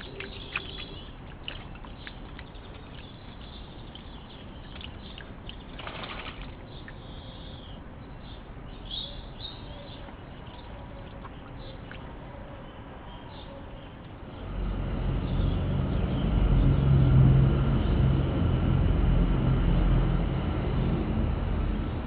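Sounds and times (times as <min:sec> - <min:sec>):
bird splashing in water: 0:00.0 - 0:07.2
bird chirps: 0:00.0 - 0:14.0.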